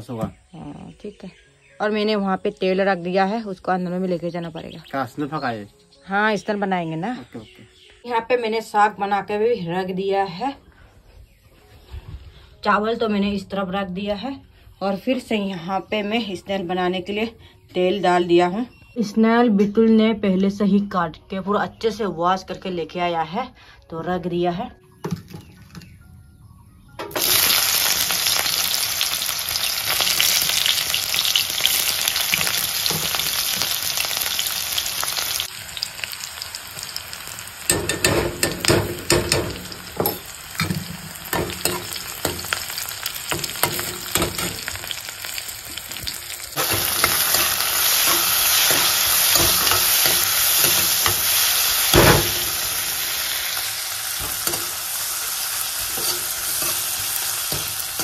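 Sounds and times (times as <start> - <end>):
onions sizzling in hot oil: 27.1 - 58.0
spoon scraping metal pan: 55.8 - 58.0.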